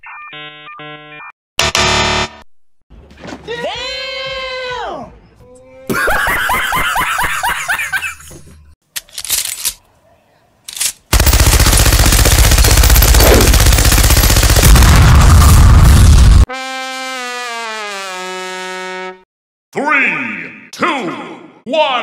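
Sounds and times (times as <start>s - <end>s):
man laughing loudly: 5.9s - 8.3s
machine-gun fire: 11.1s - 16.4s.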